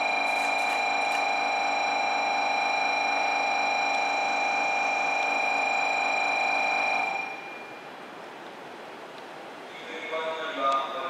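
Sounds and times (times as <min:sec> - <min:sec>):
steady buzzing hum: 0:00.0 - 0:11.0.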